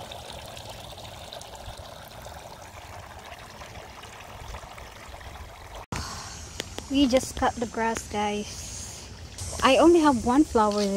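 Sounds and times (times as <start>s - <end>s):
fountain water pouring: 0.0s - 5.9s.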